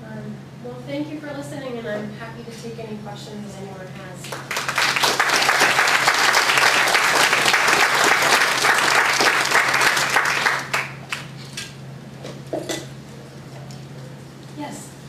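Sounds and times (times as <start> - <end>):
audience applauding: 4.3 - 11.3.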